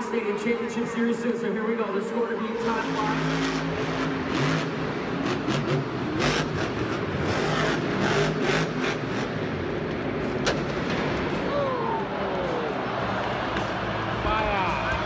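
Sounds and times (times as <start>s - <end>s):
stadium crowd noise: 0.0s - 15.0s
truck engine revving hard: 2.6s - 10.8s
sharp crack: 10.4s - 11.6s.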